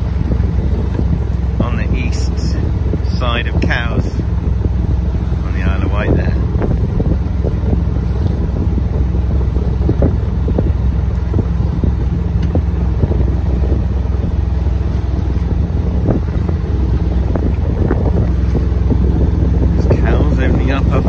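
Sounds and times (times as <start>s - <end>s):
boat motor droning: 0.0s - 21.0s
wind buffeting microphone: 0.0s - 21.0s.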